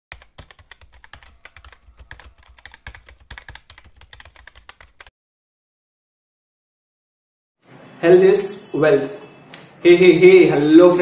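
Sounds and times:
keyboard typing: 0.1 - 5.1.

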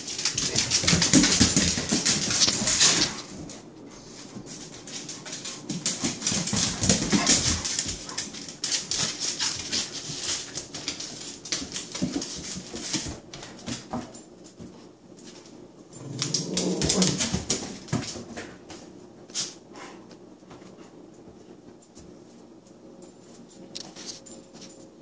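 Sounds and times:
claws scrabbling on tiles: 0.0 - 3.6, 4.2 - 13.9, 16.0 - 18.2.

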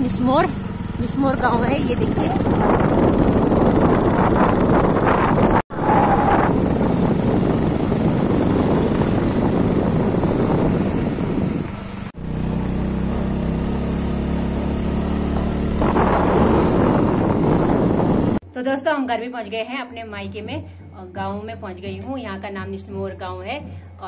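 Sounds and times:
wind rushing over microphone: 0.0 - 18.4
motorcycle engine hum: 0.0 - 18.5.

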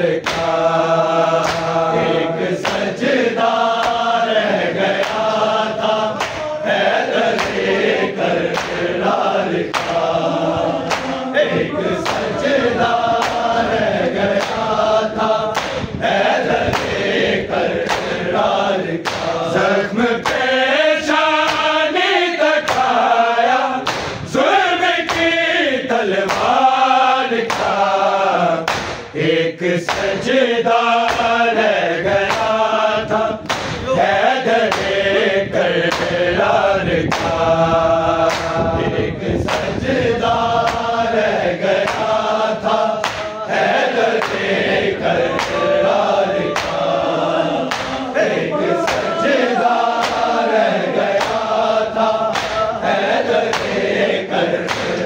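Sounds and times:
sharp rhythmic strikes: 0.0 - 12.4, 14.3 - 16.1, 17.8 - 22.0, 22.6 - 23.2, 23.8 - 29.2, 29.8 - 31.6, 32.3 - 36.2, 41.8 - 55.0
men chanting a lament: 0.0 - 55.0.

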